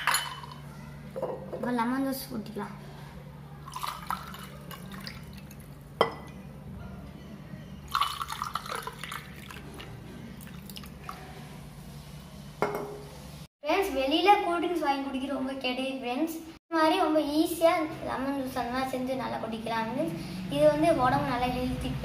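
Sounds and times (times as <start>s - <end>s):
glass clink: 0.0s - 0.6s, 6.0s - 6.4s, 12.6s - 13.0s
juice pouring over ice: 3.7s - 5.8s, 7.9s - 9.8s, 10.4s - 11.1s.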